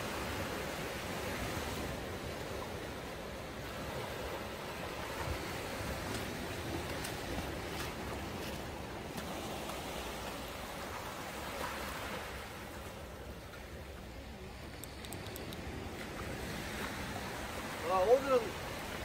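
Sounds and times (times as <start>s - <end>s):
faint clicks: 14.7s - 15.7s.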